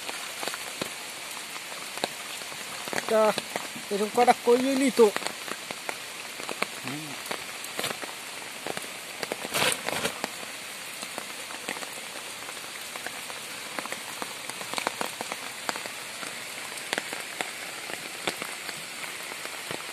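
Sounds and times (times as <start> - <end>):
steady rain falling: 0.0 - 19.9
brief loud rustle: 9.5 - 10.2.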